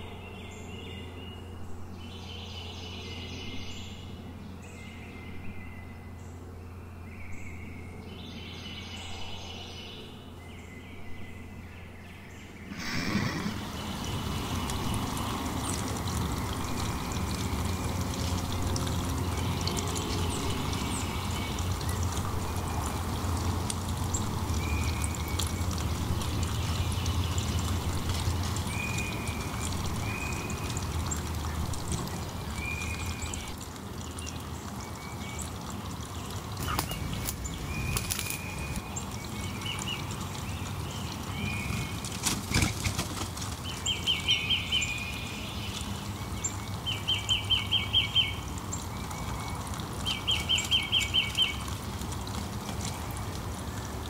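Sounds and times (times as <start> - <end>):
sharp crackles: 36.6 - 39.0.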